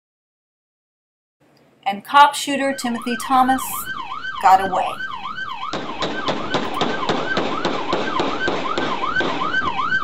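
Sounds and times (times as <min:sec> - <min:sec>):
police siren yelping: 0:02.4 - 0:10.0
rapid gunshots: 0:05.6 - 0:09.8.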